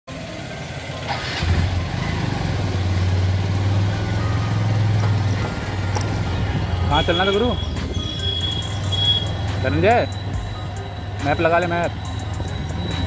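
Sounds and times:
motorcycle engine drone: 0:00.1 - 0:13.0.

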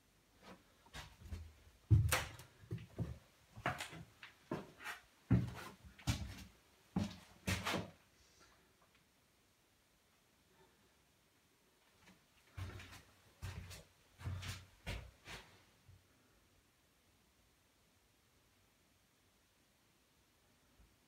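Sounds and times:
footsteps on wooden floorboards: 0:01.0 - 0:07.8.

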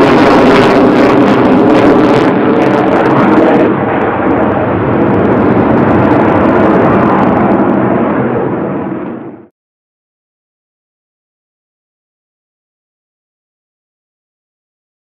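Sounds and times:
fighter jet engines: 0:00.0 - 0:09.5.

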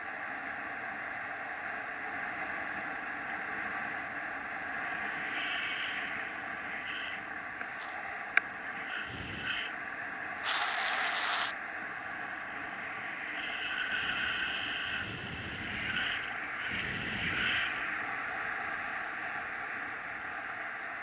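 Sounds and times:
wind rushing over microphone: 0:08.7 - 0:09.6, 0:12.8 - 0:18.9.

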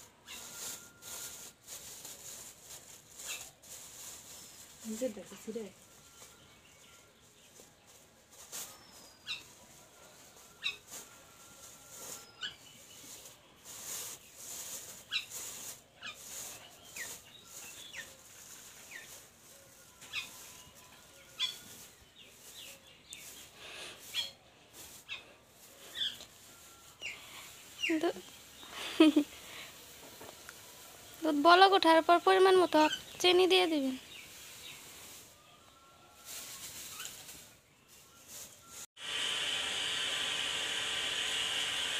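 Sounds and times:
small birds chirping: 0:12.0 - 0:19.2, 0:19.8 - 0:29.9, 0:32.4 - 0:35.2.

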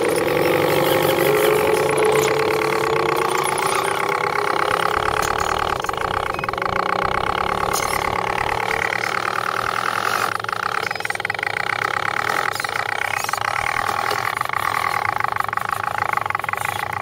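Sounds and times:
rc truck motors whining: 0:00.0 - 0:17.0.

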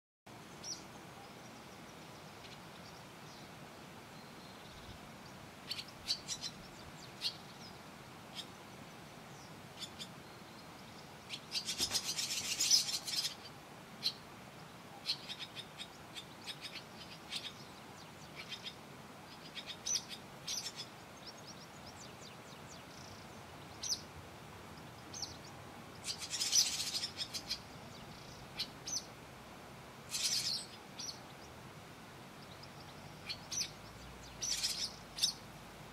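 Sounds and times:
nestlings chirping: 0:11.3 - 0:13.4, 0:25.1 - 0:27.6, 0:30.1 - 0:31.2, 0:34.4 - 0:35.4.

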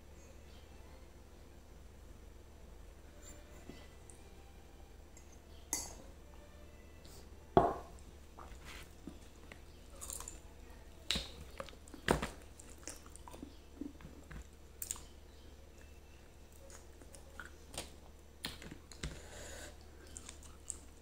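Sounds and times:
chewing and biting: 0:11.1 - 0:15.1.

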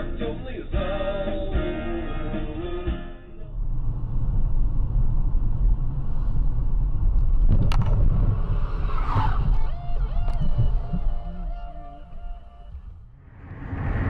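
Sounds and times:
car interior rumble: 0:02.8 - 0:13.6.

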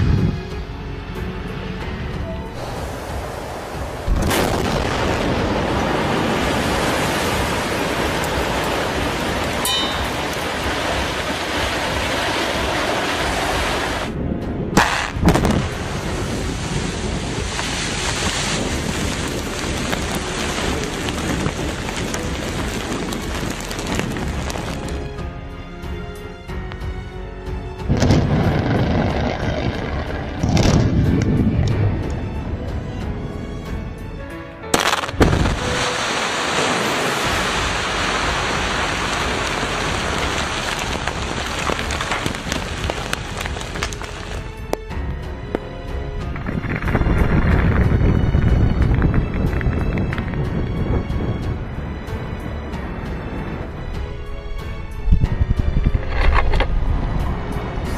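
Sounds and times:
rushing air buffeting microphone: 0:00.0 - 0:00.6, 0:02.0 - 0:24.9, 0:46.0 - 0:57.9
explosive blast cracks: 0:04.1 - 0:06.6, 0:14.7 - 0:16.3, 0:27.9 - 0:31.6, 0:34.7 - 0:37.6
rock and dust pouring out: 0:14.8 - 0:25.0, 0:34.8 - 0:44.8, 0:46.2 - 0:50.5
falling rock ticks: 0:40.2 - 0:44.8.

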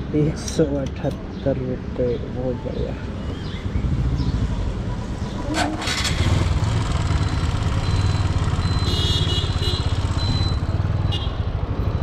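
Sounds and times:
motorcycle engine idling: 0:05.7 - 0:11.2.

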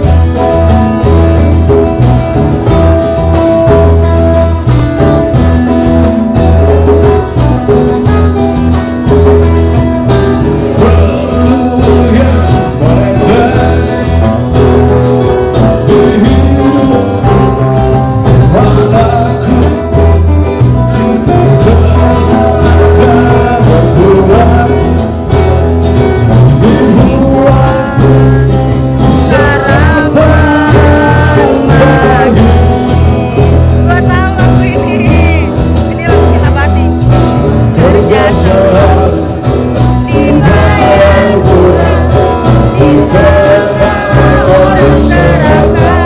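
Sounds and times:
acoustic guitars strummed: 0:00.0 - 0:46.0
hand drum: 0:00.0 - 0:46.0
man singing into a microphone: 0:10.4 - 0:25.6, 0:26.3 - 0:37.0, 0:37.6 - 0:46.0.

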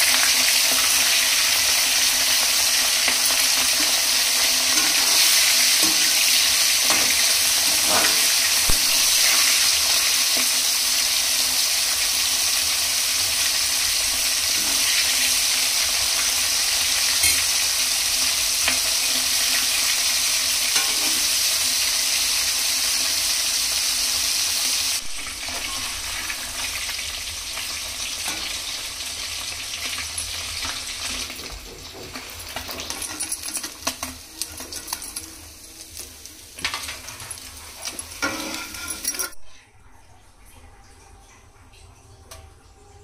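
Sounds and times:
utensil stirring in pan: 0:00.0 - 0:24.8, 0:25.4 - 0:39.4
fish sizzling in hot oil: 0:00.0 - 0:39.4.

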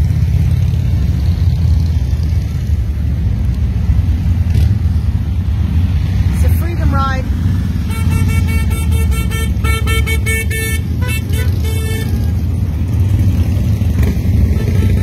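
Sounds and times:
motorcycle engines rumbling: 0:00.0 - 0:15.0
horn beeps: 0:07.9 - 0:12.4.

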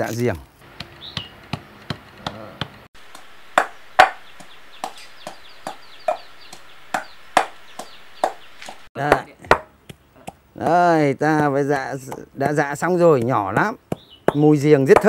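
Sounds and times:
pestle pounding in a mortar: 0:11.3 - 0:15.0.

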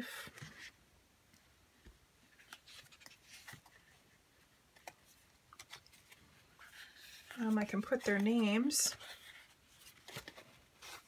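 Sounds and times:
pages turning with soft ticks: 0:00.1 - 0:11.0
paper rustling: 0:02.2 - 0:11.0.

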